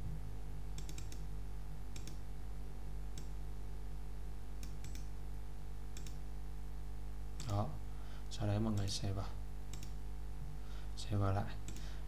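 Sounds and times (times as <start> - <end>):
low electrical hum: 0.0 - 12.0
mouse and keyboard clicks: 0.8 - 1.2.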